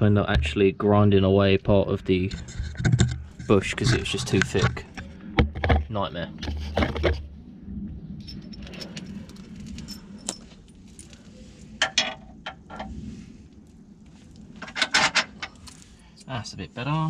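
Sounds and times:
metal bolt clinking and rattling: 8.2s - 11.0s, 14.6s - 15.8s.

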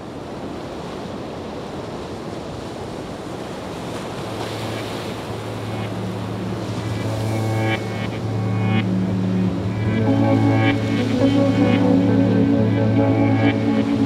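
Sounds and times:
ocean waves washing on shore: 0.0s - 14.0s
low held music tones: 4.5s - 14.0s.

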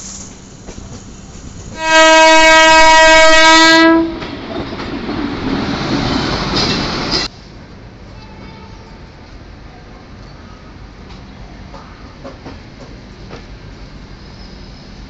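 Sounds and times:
train rushing and rattling past: 0.0s - 15.0s
locomotive horn blast: 1.8s - 4.2s.

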